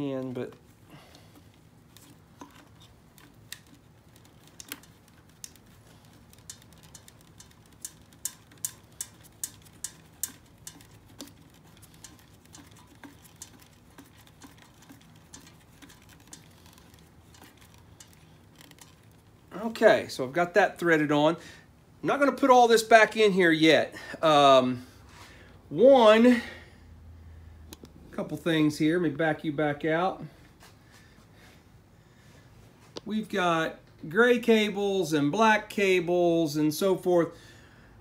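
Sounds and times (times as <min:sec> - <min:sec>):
small clicks and ticks: 0:01.5 - 0:19.6.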